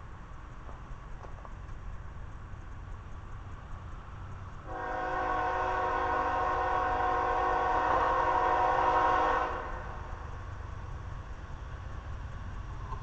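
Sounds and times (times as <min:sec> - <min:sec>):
locomotive air horn: 0:04.7 - 0:10.2.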